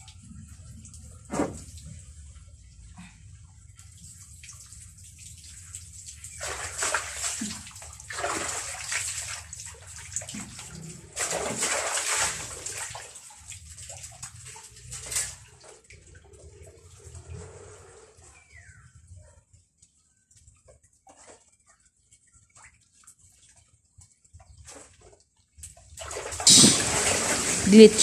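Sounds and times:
water sloshing and splashing: 0.0s - 28.0s.

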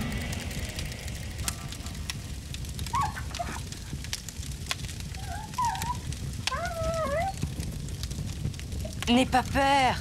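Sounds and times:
campfire crackling and popping: 0.0s - 10.0s
wolf cub whimpering: 2.9s - 3.7s, 5.2s - 7.4s.

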